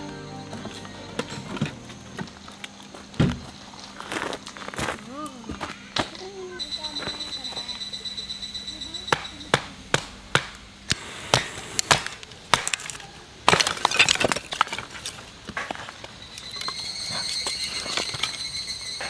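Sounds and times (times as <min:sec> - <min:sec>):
high-pitched drone: 0:00.0 - 0:02.6
wood splitting and cracking: 0:10.0 - 0:16.8.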